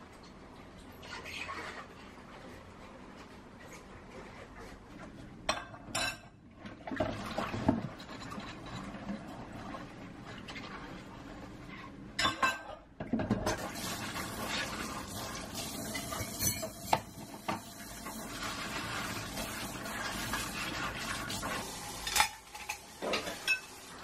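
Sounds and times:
dishes and utensils clinking: 5.5 - 6.4, 12.2 - 13.6, 15.8 - 17.7, 21.9 - 23.8
running tap water: 13.5 - 24.0.

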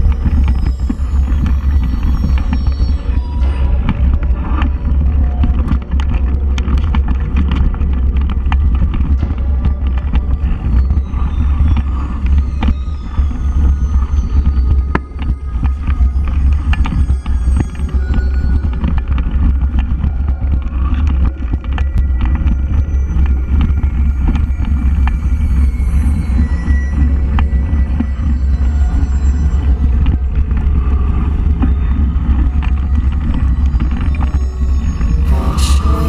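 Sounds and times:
bike clicks and rattles: 3.7 - 12.8, 18.6 - 25.2.

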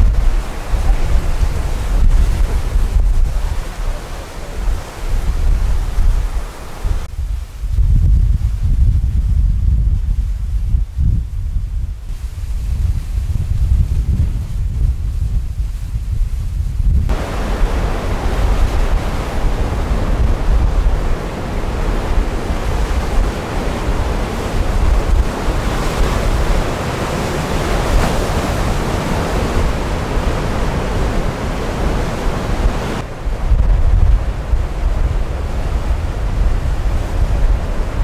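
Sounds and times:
surf washing over rocks: 0.0 - 7.1, 17.1 - 38.0
wind buffeting microphone: 0.0 - 38.0.

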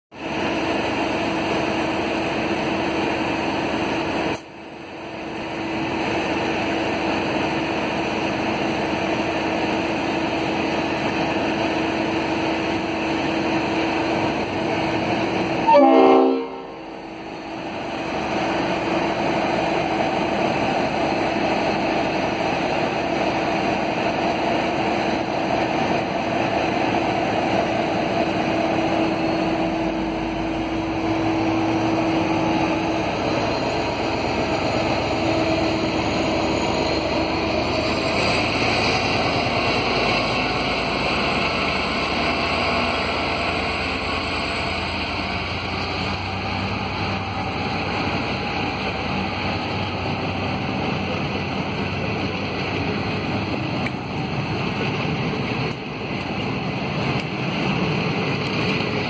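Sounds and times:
short horn toot: 15.6 - 16.8.

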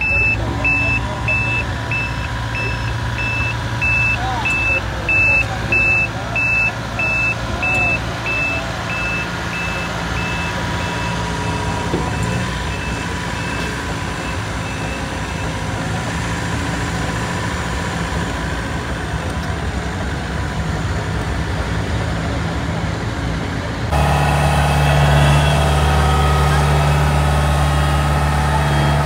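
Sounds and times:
reversing alarm beeping: 0.0 - 16.0, 23.9 - 29.0
road-paving machines running: 0.0 - 29.0.

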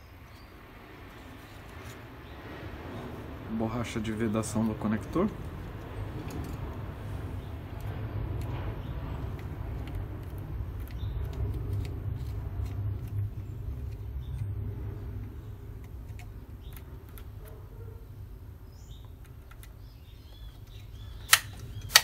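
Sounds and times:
low rumble: 0.6 - 17.5.

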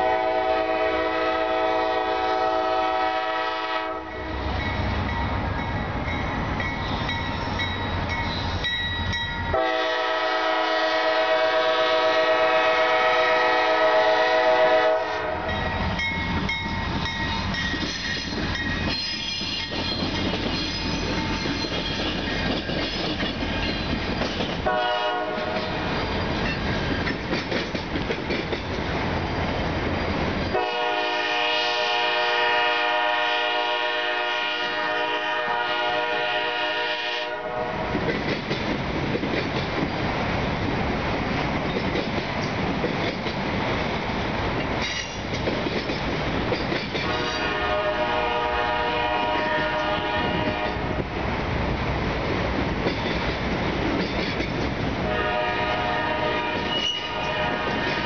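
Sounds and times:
locomotive air horn blasts: 0.0 - 4.4, 9.5 - 15.6, 24.6 - 25.8, 30.5 - 37.9, 47.0 - 51.0, 55.0 - 58.0
freight cars rumbling and clattering: 15.7 - 24.7, 25.4 - 30.5.

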